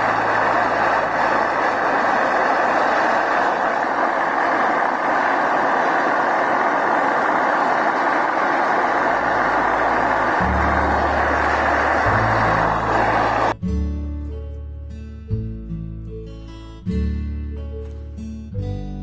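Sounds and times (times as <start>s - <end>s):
loud forge roar: 0.0s - 13.6s
shop vacuum blower: 0.0s - 13.6s.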